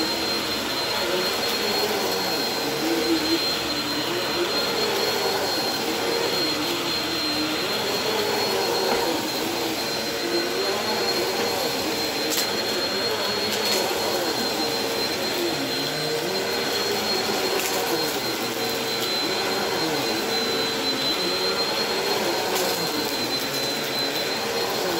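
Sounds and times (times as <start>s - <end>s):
vacuum cleaner running: 0.0s - 24.9s.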